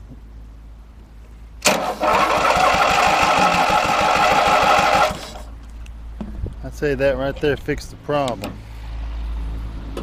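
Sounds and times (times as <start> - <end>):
starter cranking engine: 1.6 - 5.6.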